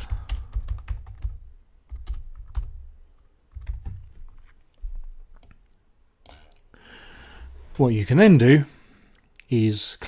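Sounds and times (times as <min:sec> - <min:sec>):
typing on computer keyboard: 0:00.0 - 0:02.8, 0:03.5 - 0:04.2.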